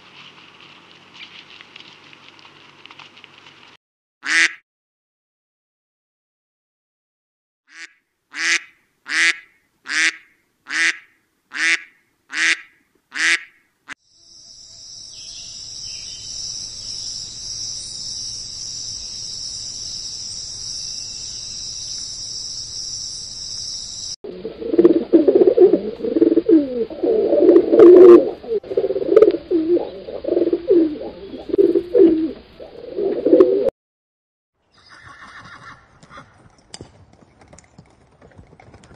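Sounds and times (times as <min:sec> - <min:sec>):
duck quacking: 0:04.2 - 0:04.6, 0:07.7 - 0:13.6
pigeons cooing: 0:24.3 - 0:33.7.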